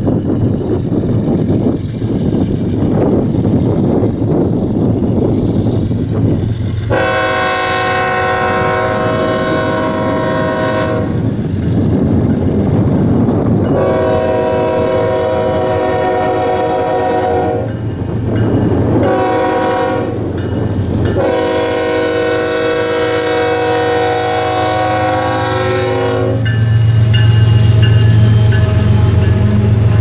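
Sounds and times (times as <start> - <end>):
train rumbling: 0.0 - 30.0
train air horn blasts: 6.9 - 11.2, 13.7 - 17.7, 19.0 - 20.3, 21.2 - 26.6.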